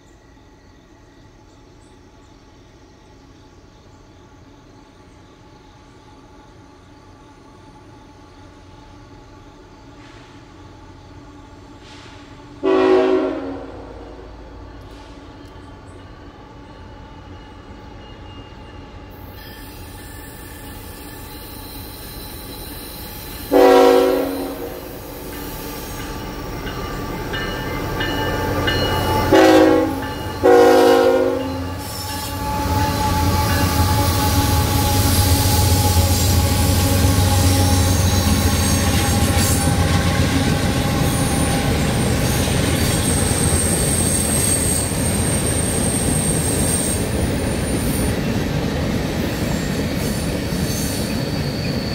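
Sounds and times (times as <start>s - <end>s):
diesel locomotives rumbling: 3.5s - 51.9s
locomotive air horn blasts: 12.6s - 14.2s, 23.5s - 25.2s, 29.2s - 35.2s
high wheel squeal: 17.4s - 23.6s, 31.4s - 48.5s, 49.2s - 51.9s.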